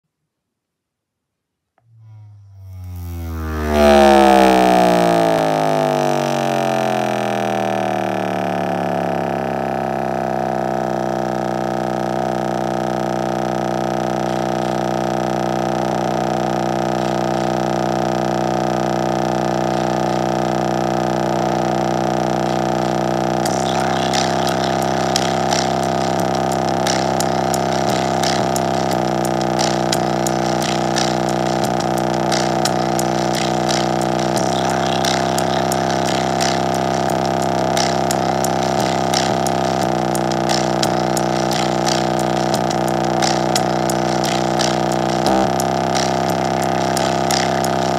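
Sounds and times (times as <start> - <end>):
deep buzzy bass from speaker: 1.8 - 47.9
crackling rattle: 23.4 - 47.9.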